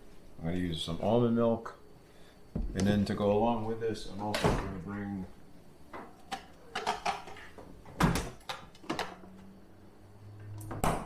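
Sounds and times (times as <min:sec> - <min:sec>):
refrigerator door shutting: 0:04.2 - 0:04.8.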